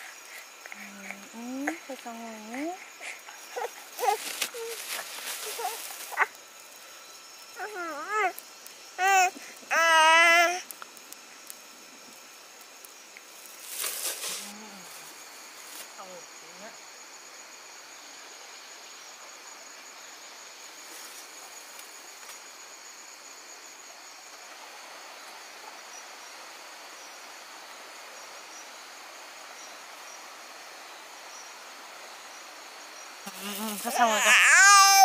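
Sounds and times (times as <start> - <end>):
insects chirring: 0.0 - 35.0
person speaking: 0.8 - 6.2, 33.3 - 35.0.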